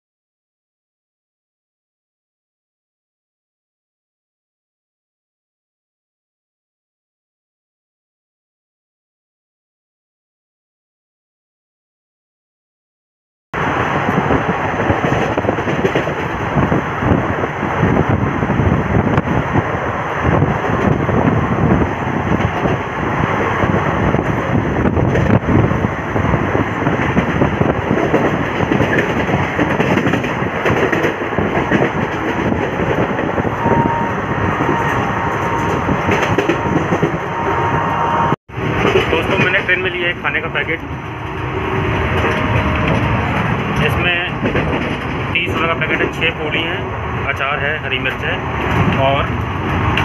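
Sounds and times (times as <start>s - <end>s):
coaches rattling on track: 13.6s - 37.8s, 38.6s - 50.0s
train rushing at speed: 13.6s - 50.0s.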